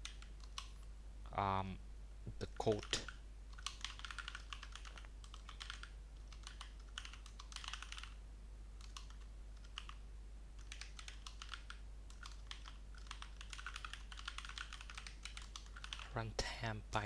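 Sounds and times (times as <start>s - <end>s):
keyboard typing: 0.0s - 0.8s, 2.6s - 8.2s, 8.8s - 10.0s, 10.6s - 16.1s
low steady hum: 0.0s - 17.0s.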